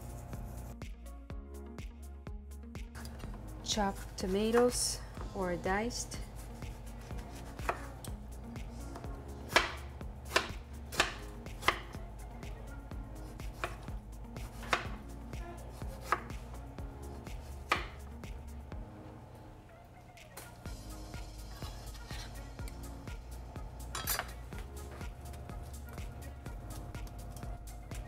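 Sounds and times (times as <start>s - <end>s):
knife chopping on cutting board: 6.6s - 7.9s, 9.5s - 12.0s, 13.3s - 15.0s, 15.8s - 16.4s, 17.4s - 18.1s.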